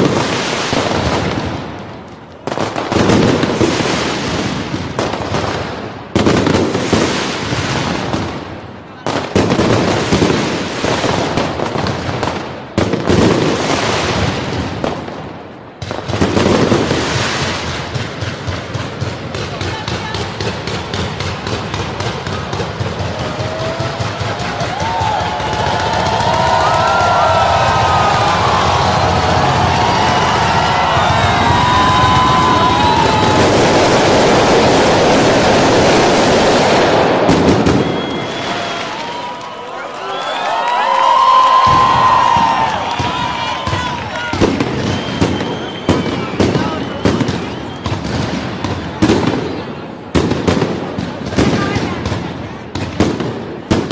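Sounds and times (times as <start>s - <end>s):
fireworks bursting: 0.0s - 53.9s
fireworks crackling: 0.0s - 53.9s.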